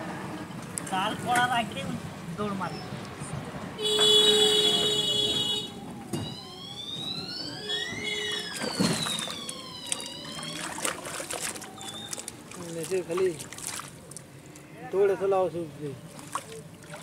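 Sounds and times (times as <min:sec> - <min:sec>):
siren wailing: 0:05.3 - 0:12.5.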